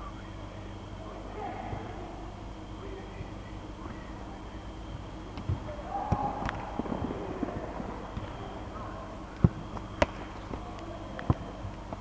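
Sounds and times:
football kick thuds: 5.3s - 8.4s, 9.4s - 11.5s.

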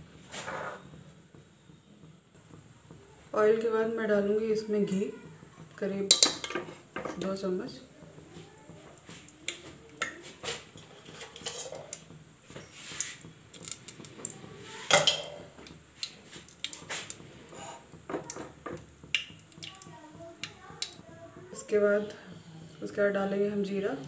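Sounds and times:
kitchen utensils clinking and knocking: 6.0s - 7.4s, 10.4s - 12.8s, 13.5s - 15.7s.

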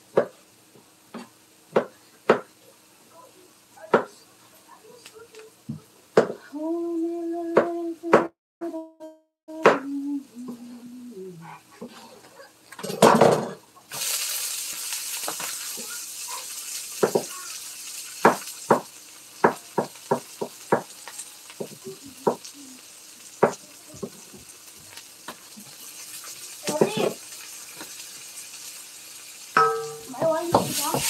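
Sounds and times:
food frying sizzle: 12.1s - 31.0s
tomatoes thudding into wok: 29.6s - 31.0s.

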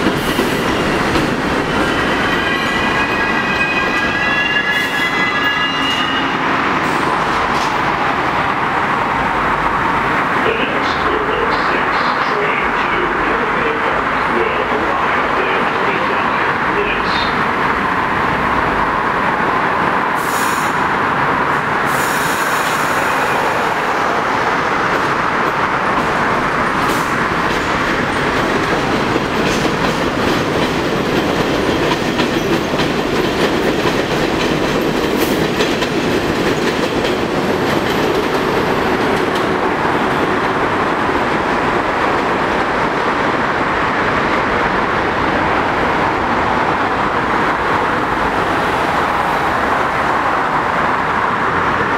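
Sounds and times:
train wheels on rail: 0.0s - 51.9s
high-pitched wheel squeals: 2.0s - 6.4s.

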